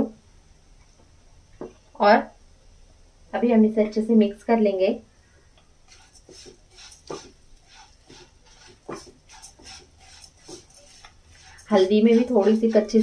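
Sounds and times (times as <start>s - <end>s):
oil sizzling: 5.8s - 13.0s
spatula scraping a pan: 5.8s - 13.0s.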